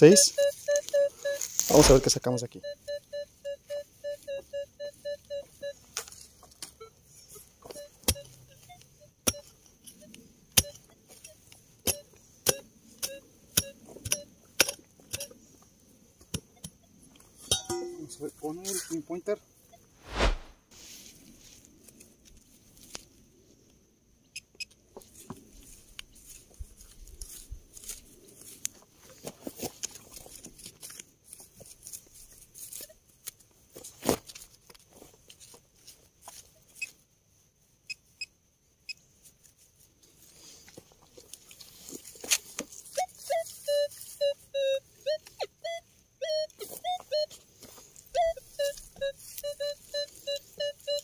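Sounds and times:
digging tool scraping dirt: 0.4s - 2.2s, 20.0s - 20.6s.

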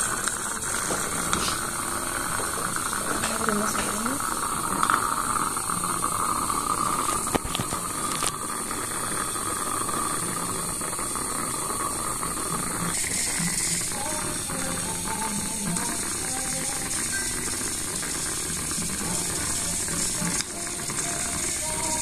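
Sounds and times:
saliva ejector suction hiss: 12.9s - 20.6s.

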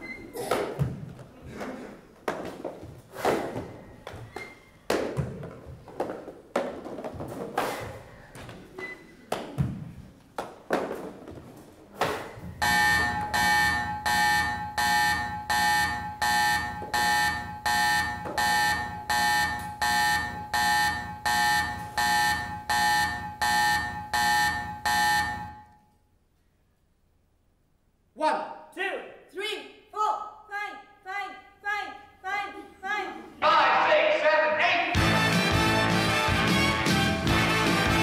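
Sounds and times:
electronic alarm buzzing: 12.6s - 25.8s.

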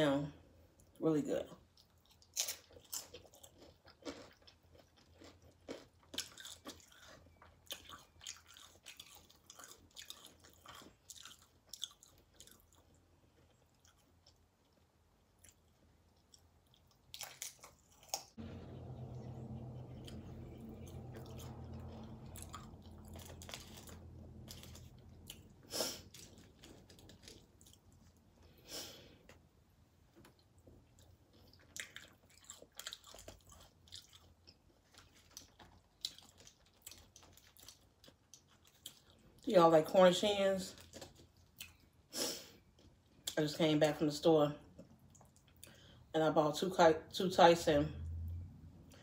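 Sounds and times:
chewing crunchy chips: 1.6s - 29.4s, 30.2s - 39.5s, 40.2s - 43.4s, 44.6s - 46.1s
low steady hum: 18.4s - 41.8s, 42.7s - 49.0s.

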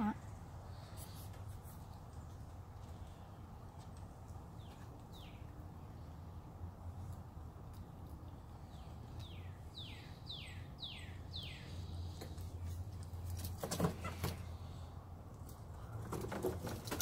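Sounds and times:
rustling and knocks: 16.0s - 17.0s.

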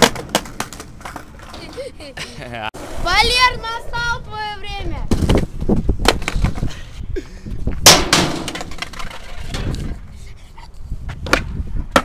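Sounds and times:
skateboard deck and wheels clattering: 0.0s - 1.8s, 5.0s - 6.7s, 7.8s - 10.1s, 11.2s - 12.0s
wind rumble on microphone: 3.0s - 7.9s, 9.1s - 12.0s
skateboard cracking on asphalt: 8.4s - 10.0s.

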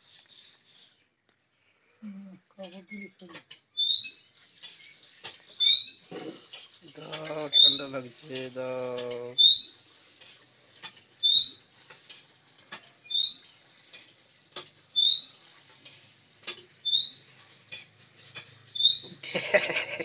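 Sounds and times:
bird chirping: 2.7s - 9.9s, 10.9s - 11.8s, 12.8s - 13.6s, 14.6s - 15.5s, 16.5s - 19.9s.

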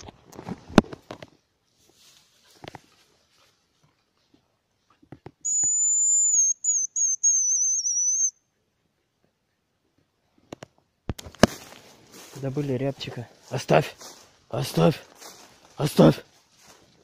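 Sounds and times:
high thin bird whistle call: 5.4s - 8.4s.

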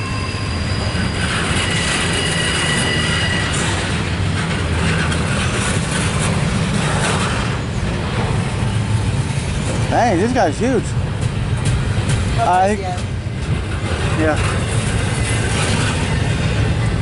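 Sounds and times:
high wheel squeal: 0.0s - 4.2s, 14.2s - 17.0s
train wheels rumbling on rail: 0.0s - 17.0s.

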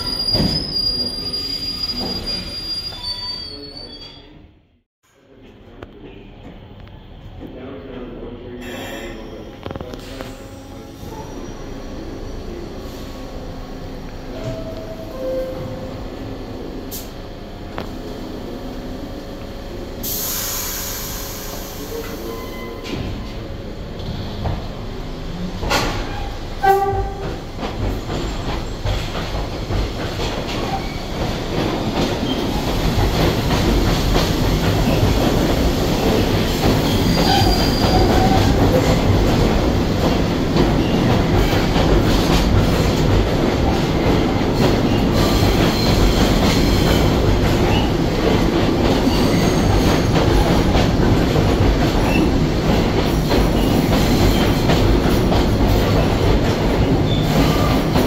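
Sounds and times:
high wheel squeals: 0.0s - 4.4s, 36.8s - 38.6s
subway train rumbling: 0.0s - 58.0s.

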